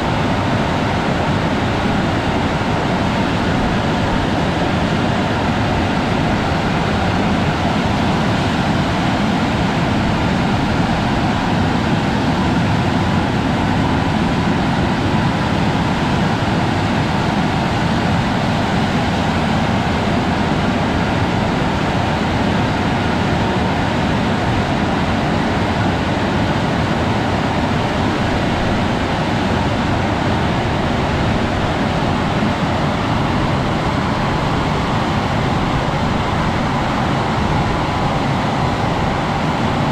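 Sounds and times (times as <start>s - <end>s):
car wash machine rushing: 27.2s - 39.9s.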